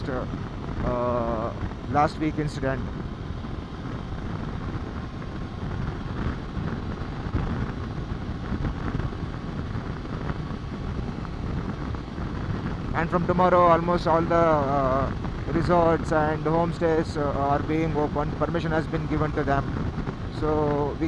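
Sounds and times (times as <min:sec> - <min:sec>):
motorcycle engine and road noise: 0:00.0 - 0:21.0
wind buffeting microphone: 0:00.0 - 0:21.0.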